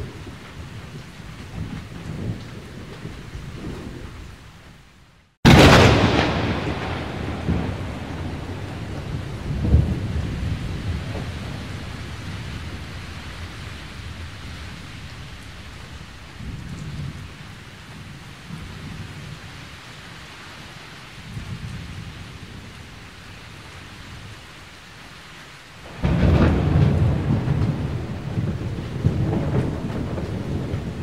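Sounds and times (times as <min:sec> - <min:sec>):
thunder rumbling: 0:00.0 - 0:04.8, 0:05.4 - 0:19.4, 0:25.8 - 0:31.0
steady rain: 0:00.0 - 0:31.0
loud crack of thunder: 0:05.4 - 0:15.2, 0:25.9 - 0:31.0.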